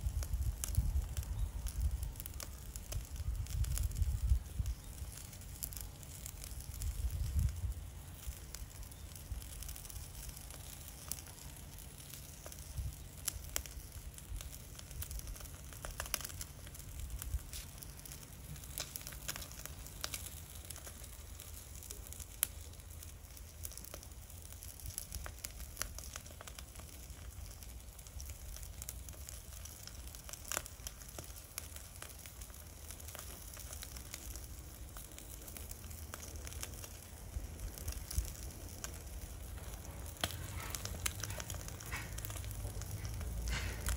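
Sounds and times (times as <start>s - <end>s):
crackles and pops from coals: 0.0s - 43.9s
fish sizzling on a grill: 0.0s - 43.9s
low steady rumble: 34.3s - 43.9s.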